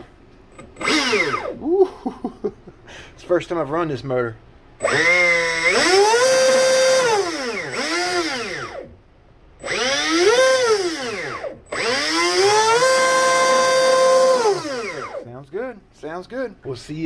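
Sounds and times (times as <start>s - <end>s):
electric motor whining: 0.7s - 1.6s, 4.8s - 8.9s, 9.6s - 15.2s.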